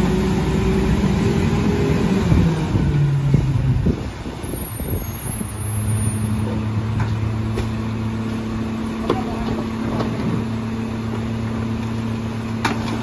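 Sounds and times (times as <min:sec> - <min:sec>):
truck engine idling: 0:06.2 - 0:13.0.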